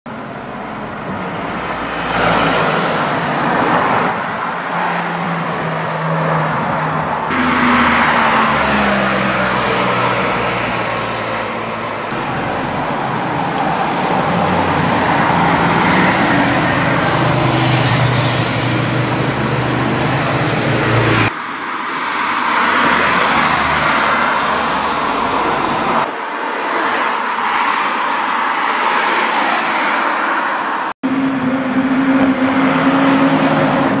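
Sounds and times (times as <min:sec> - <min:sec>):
tyre and traffic noise: 0:00.1 - 0:34.0
sports car engines passing: 0:00.6 - 0:21.4.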